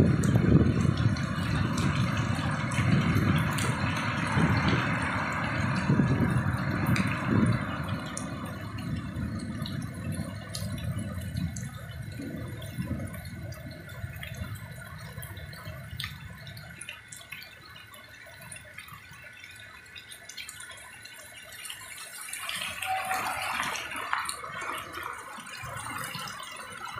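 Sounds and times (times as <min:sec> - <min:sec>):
low rumble: 0:00.0 - 0:16.4
heavy rain falling: 0:00.0 - 0:26.9
water dripping off roof edge: 0:00.0 - 0:26.9.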